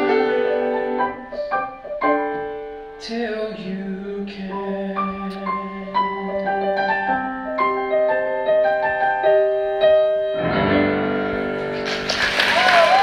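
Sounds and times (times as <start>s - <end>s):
grand piano melody: 0.0s - 12.5s
applause: 11.7s - 13.0s.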